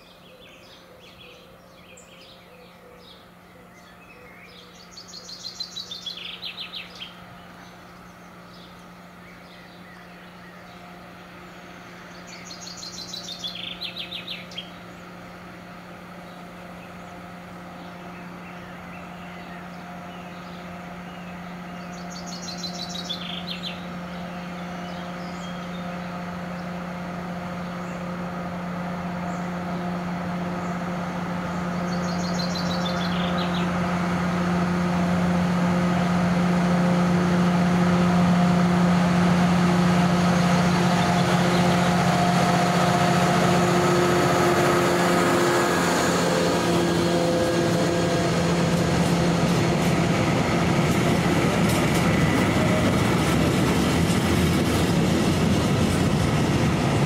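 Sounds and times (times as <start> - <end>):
songbird trill: 0.0 - 35.1, 39.9 - 42.9
diesel locomotive engine droning: 0.0 - 57.0.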